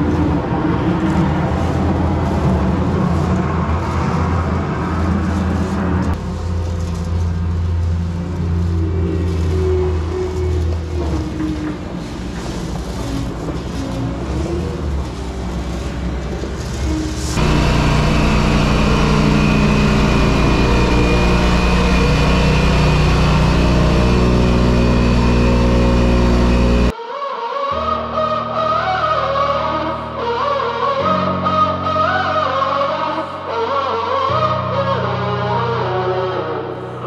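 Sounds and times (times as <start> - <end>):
construction machine engine running: 14.9 - 26.9
loud steady drone: 17.2 - 26.9.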